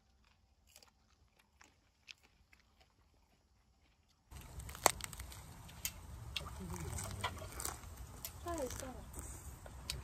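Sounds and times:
lettuce leaves crackling: 4.3s - 10.0s.

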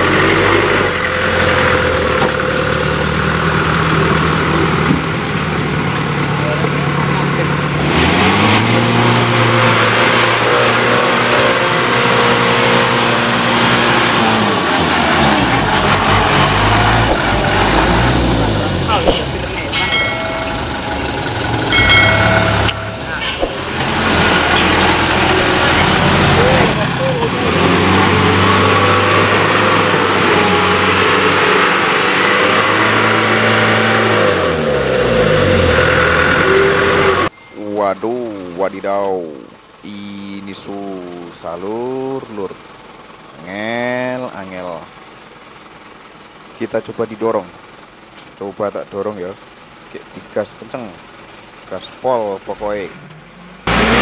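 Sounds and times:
electric motor and gears whining: 15.8s - 28.4s.

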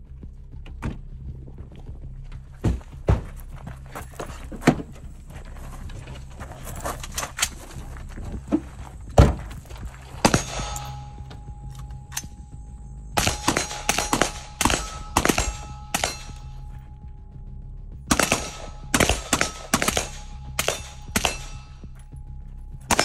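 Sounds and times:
gear knocking against car: 0.6s - 10.4s.

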